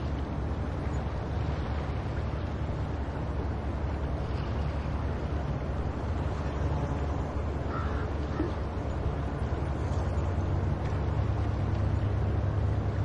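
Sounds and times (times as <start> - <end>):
wind and surf rumble: 0.0 - 13.0
gull call: 7.7 - 8.6.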